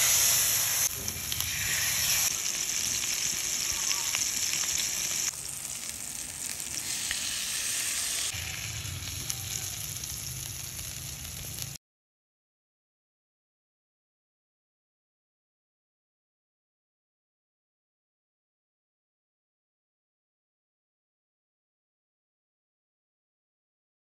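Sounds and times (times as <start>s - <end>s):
chicken frying in hot oil: 0.0s - 11.8s.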